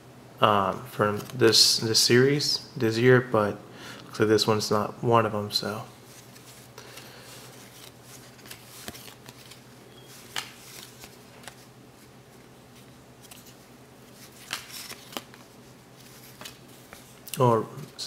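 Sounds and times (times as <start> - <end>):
low steady hum: 0.0 - 18.0
cards flipped through by hand: 6.1 - 17.4.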